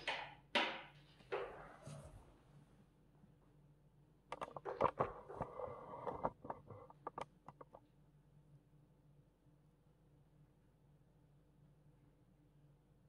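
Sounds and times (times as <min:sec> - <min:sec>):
sharp clicks taps and scuffling: 0:04.3 - 0:07.8.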